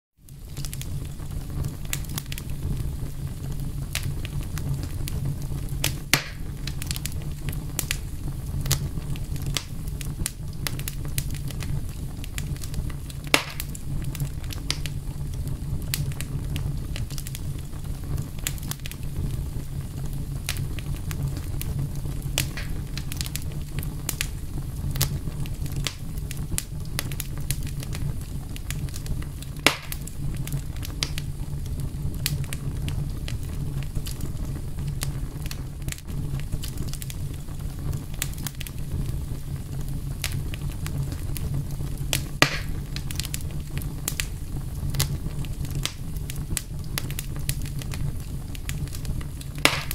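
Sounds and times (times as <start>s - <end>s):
campfire crackling and popping: 0.2s - 49.9s
steady low rumble: 0.3s - 49.9s
loud wood snaps: 5.8s - 7.1s, 13.3s - 13.8s, 22.4s - 23.3s, 29.6s - 30.1s, 42.1s - 43.3s, 49.6s - 49.9s.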